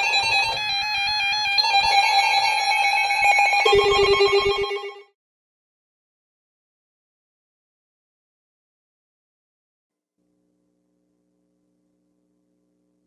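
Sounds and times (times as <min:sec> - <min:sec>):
fast electronic beeping melody: 0:00.0 - 0:05.1
low electronic tone: 0:03.6 - 0:05.0.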